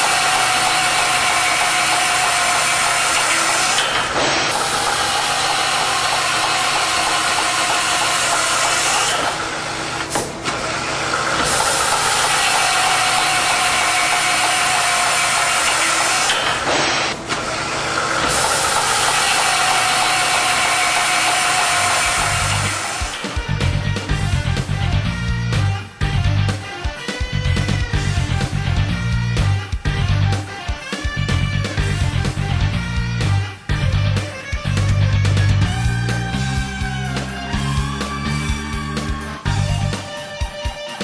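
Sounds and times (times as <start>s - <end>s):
drill boring through steel: 0.0s - 23.7s.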